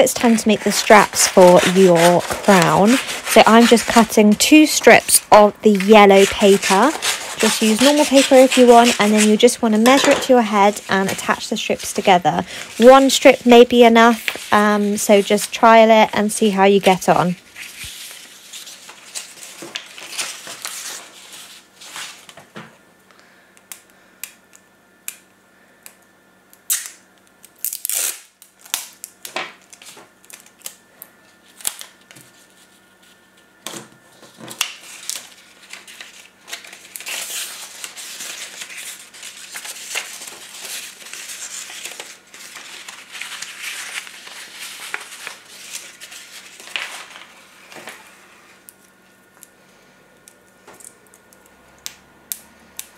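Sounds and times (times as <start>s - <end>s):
paper rustling and crinkling: 0.0s - 22.6s, 34.1s - 48.7s.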